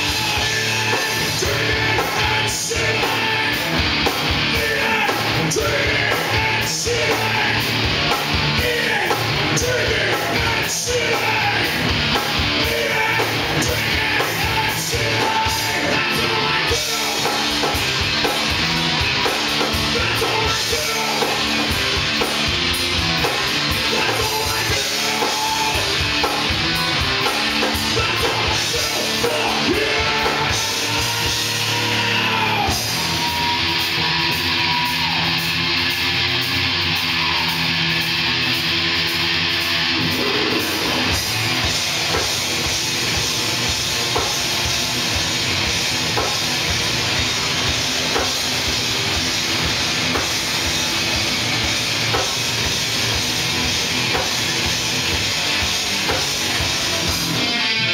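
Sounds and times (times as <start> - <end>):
person singing: 0.0 - 3.8, 4.4 - 7.9, 8.5 - 11.9, 12.5 - 17.8, 19.8 - 21.8, 23.7 - 33.8
rock band playing live: 0.0 - 57.9.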